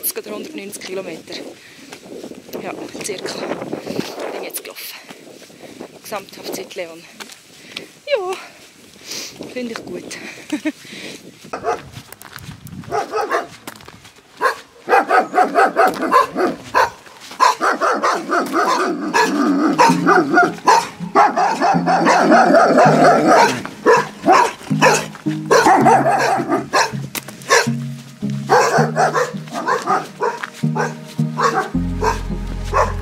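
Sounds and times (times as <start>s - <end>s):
dogs barking: 11.6s - 11.9s, 12.9s - 13.6s, 14.4s - 27.8s, 28.4s - 33.0s.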